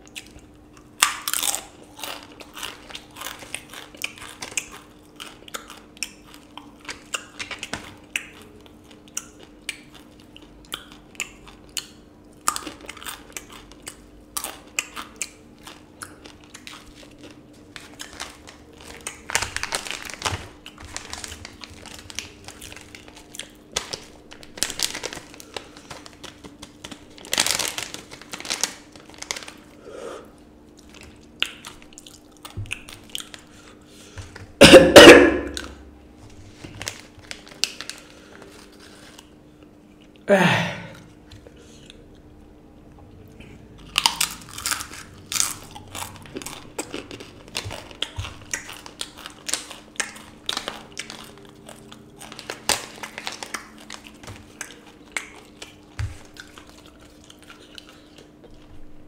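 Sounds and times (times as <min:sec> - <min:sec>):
chip crunching while chewed: 0:00.0 - 0:29.8, 0:30.7 - 0:35.8, 0:36.5 - 0:40.3, 0:43.3 - 0:58.7
foil packet crinkling: 0:15.7 - 0:29.8, 0:35.0 - 0:39.4, 0:43.9 - 0:58.7.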